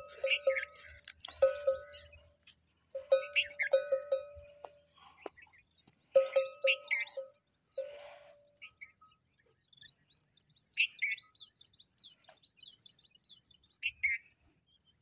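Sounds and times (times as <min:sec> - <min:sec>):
camel bell clanking: 0:00.0 - 0:05.2, 0:06.2 - 0:08.4.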